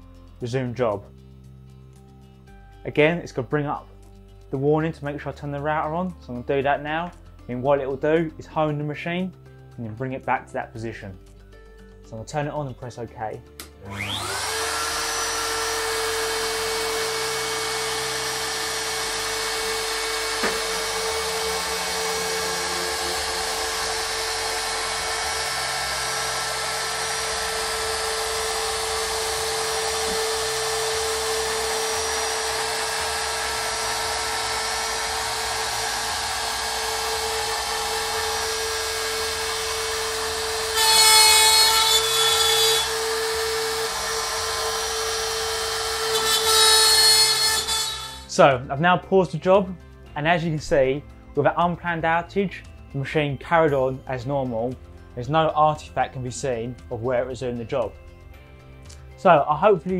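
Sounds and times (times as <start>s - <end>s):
router whining: 13.6s - 48.3s.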